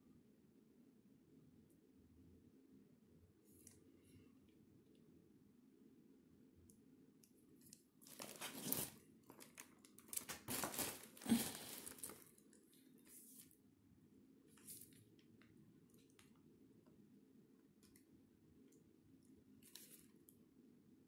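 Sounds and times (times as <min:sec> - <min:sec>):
crinkling and rustling: 0:07.6 - 0:13.6, 0:19.6 - 0:20.2.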